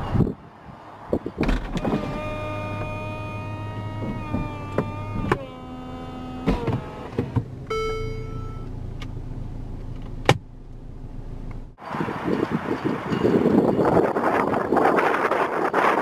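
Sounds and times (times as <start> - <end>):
roof clunks: 1.4 - 8.3
electric motor whine: 1.8 - 7.2
short tone: 7.7 - 8.8.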